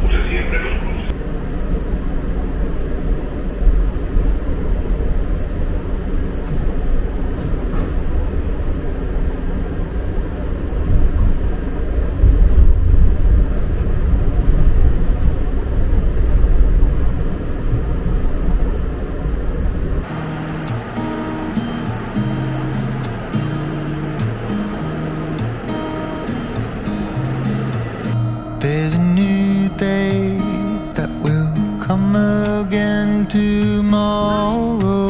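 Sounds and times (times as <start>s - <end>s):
vehicle rumble: 0.0s - 35.0s.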